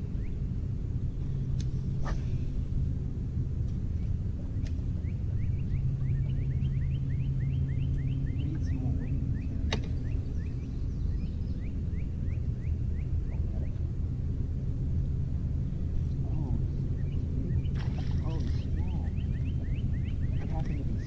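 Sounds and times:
low hum: 0.0 - 21.0
bird chirping: 5.0 - 13.8, 16.4 - 21.0.

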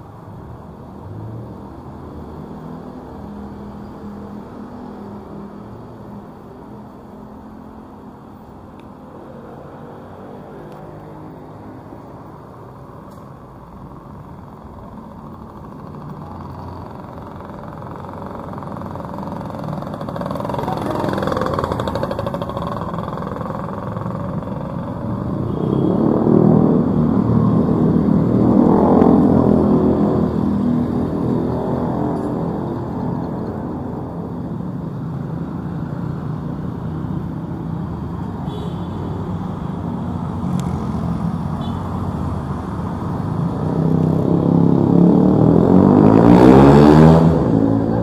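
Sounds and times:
cars passing: 0.0 - 48.0
motorbike engines passing close: 0.0 - 48.0.

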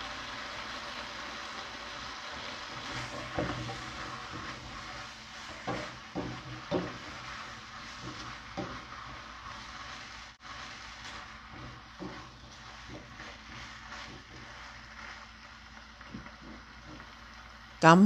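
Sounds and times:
meat sizzling in a wok: 0.0 - 18.0
spatula knocking against pan: 5.5 - 7.3, 7.9 - 8.9, 11.5 - 13.1.

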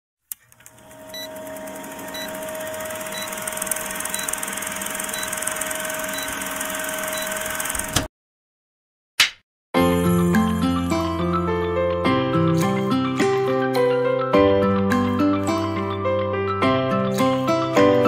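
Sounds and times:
film projector hum and ticking: 0.3 - 8.0.

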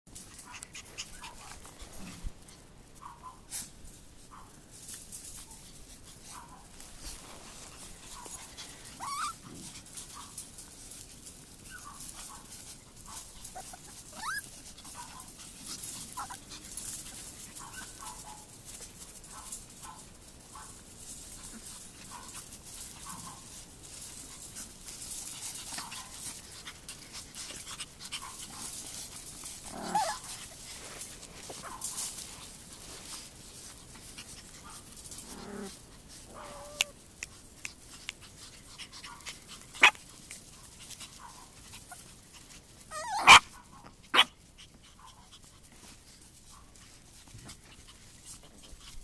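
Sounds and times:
puppies whining and yipping: 8.2 - 9.6, 13.4 - 15.3, 16.1 - 16.9, 29.7 - 30.3, 36.4 - 36.9, 42.8 - 43.5.

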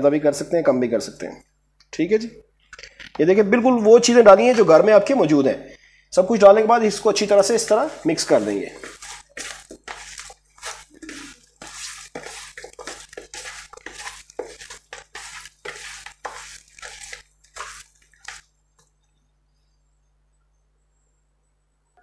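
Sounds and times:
hand squelching raw chicken in marinade: 6.9 - 18.5.

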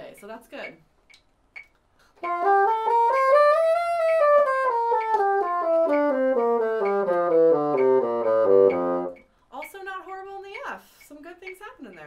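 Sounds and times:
bassoon playing a scale: 2.2 - 9.2.

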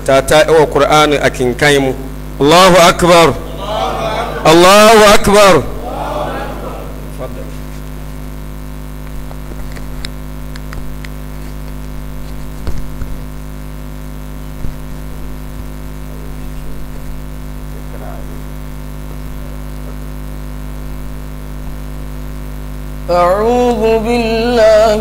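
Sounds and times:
electrical mains hum: 0.0 - 25.0
microphone handling clicks and knocks: 9.0 - 13.3.

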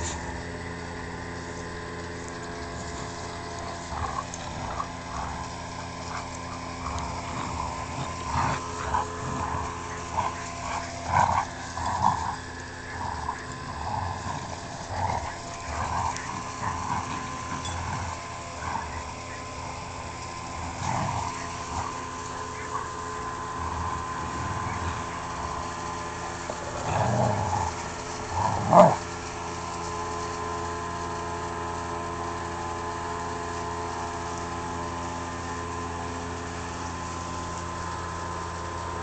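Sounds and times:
dogs growling while playing: 0.0 - 31.5
steady low hum: 0.0 - 39.0.

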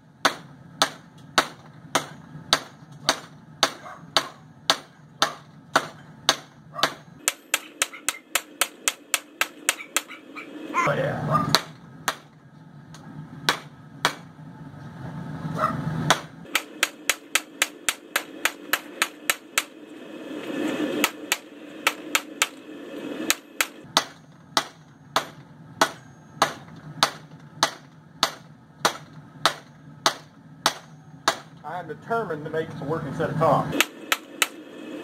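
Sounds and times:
low forge rumble: 0.0 - 35.0
hammer striking steel on anvil: 0.2 - 10.4, 11.5 - 12.4, 13.4 - 14.3, 16.1 - 22.6, 23.2 - 31.6, 33.8 - 34.6.

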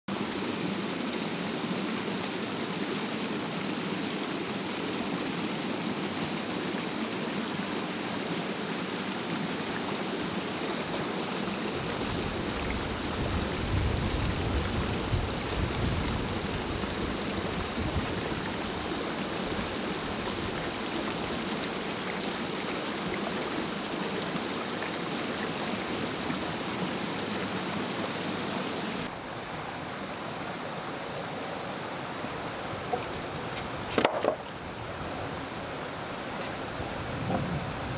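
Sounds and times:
stream rushing over rocks: 0.1 - 37.9
deep water rumble: 11.7 - 21.8.

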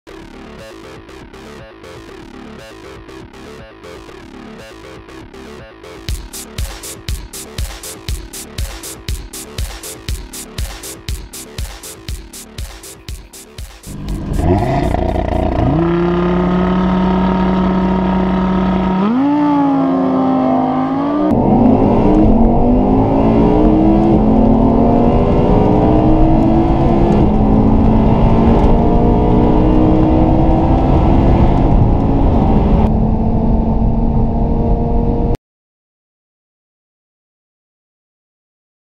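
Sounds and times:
sports car engines accelerating: 13.8 - 35.4.

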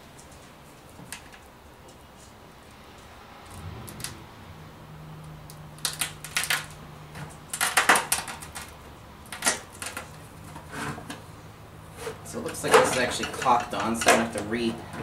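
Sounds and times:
plastic clicking and crackling: 5.5 - 11.2.

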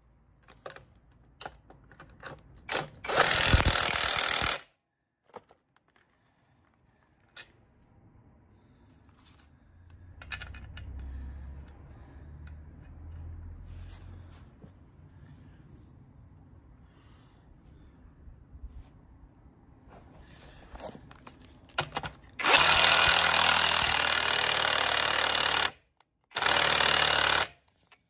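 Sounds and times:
impact wrench driving a bolt: 2.7 - 4.7, 21.8 - 27.6.

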